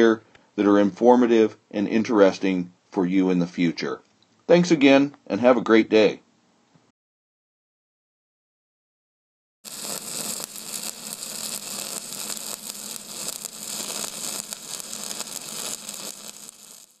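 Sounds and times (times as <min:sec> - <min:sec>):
crackling hiss: 0:09.6 - 0:17.0.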